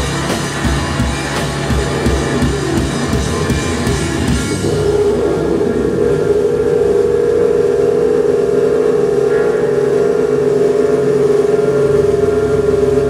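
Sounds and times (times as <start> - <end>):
amplifier feedback drone: 0.0 - 13.0
higher feedback tone: 0.0 - 13.0.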